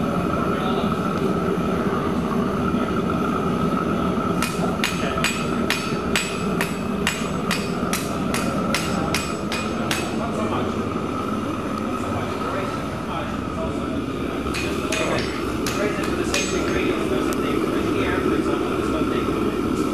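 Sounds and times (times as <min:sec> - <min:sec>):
gas forge burning: 0:00.0 - 0:19.9
hammer striking metal on anvil: 0:04.4 - 0:10.4, 0:14.5 - 0:17.1.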